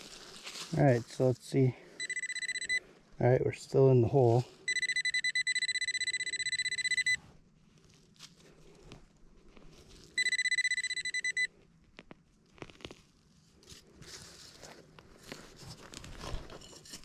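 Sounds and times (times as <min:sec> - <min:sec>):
scratching of soil dug by hand: 0:00.0 - 0:01.6, 0:12.4 - 0:17.0
metal detector pulsing beep: 0:02.0 - 0:02.8, 0:04.7 - 0:07.2, 0:10.2 - 0:11.5.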